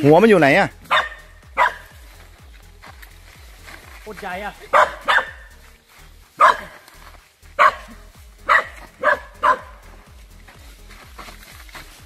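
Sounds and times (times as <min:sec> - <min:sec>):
dog barking: 0:00.8 - 0:01.9, 0:04.7 - 0:05.5, 0:06.4 - 0:06.9, 0:07.6 - 0:09.9.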